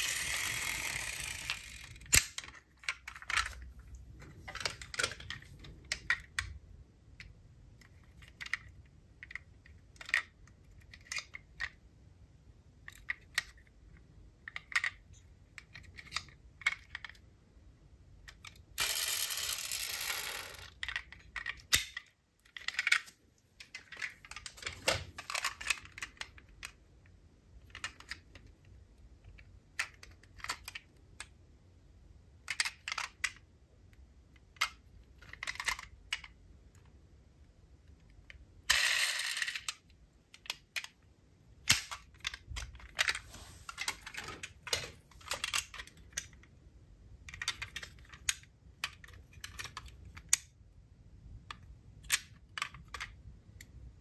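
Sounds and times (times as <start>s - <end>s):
clicks and taps of small parts: 7.2s - 11.8s, 12.8s - 17.3s, 18.2s - 31.4s, 32.4s - 37.0s, 37.8s - 41.0s, 41.6s - 46.5s, 47.2s - 50.6s, 51.4s - 53.8s.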